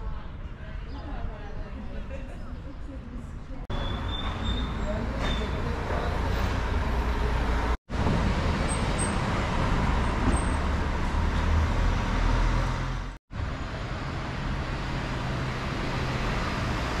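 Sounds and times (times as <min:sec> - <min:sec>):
passing cars and engines: 0:03.7 - 0:17.0.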